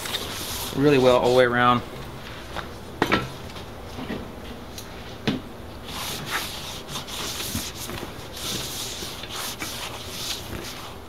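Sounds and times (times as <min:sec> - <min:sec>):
gloved hand rubbing tire: 0:00.0 - 0:01.6, 0:05.9 - 0:11.0.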